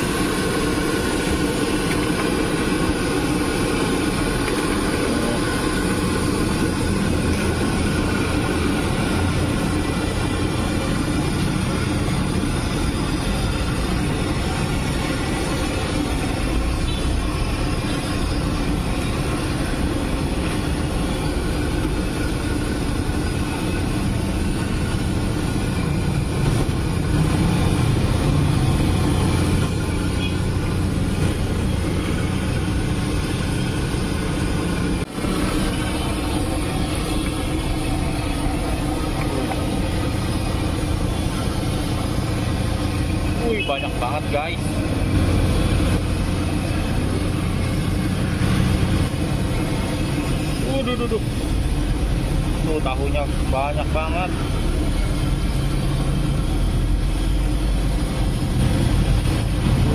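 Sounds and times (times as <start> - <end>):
constant low rumble: 0.0 - 59.9
food deep-frying in bubbling oil: 0.0 - 59.9.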